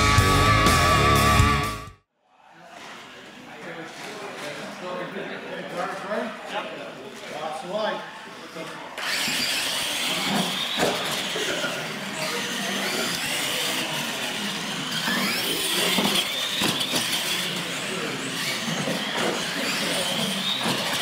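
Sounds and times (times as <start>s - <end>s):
electric motors whining: 9.0s - 21.0s.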